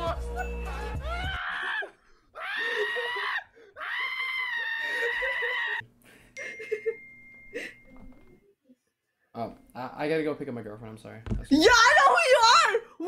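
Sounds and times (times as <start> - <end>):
person screaming: 1.0 - 5.8.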